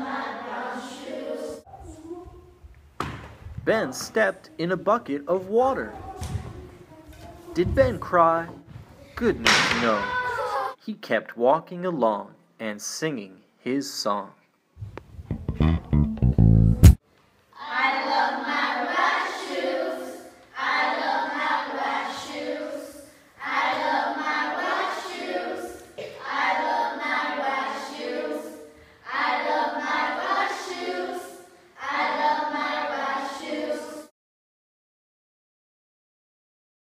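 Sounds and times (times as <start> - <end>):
children singing: 0.0 - 2.0, 17.6 - 34.1.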